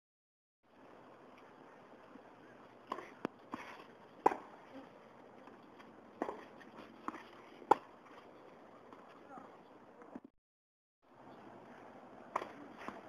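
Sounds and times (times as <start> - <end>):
tennis ball hit and bouncing: 2.8 - 4.7, 6.2 - 8.2, 12.3 - 13.0.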